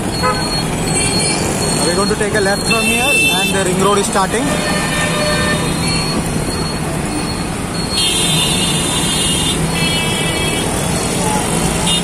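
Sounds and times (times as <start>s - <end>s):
vehicle horn blast: 0.2s - 0.5s, 4.5s - 5.8s.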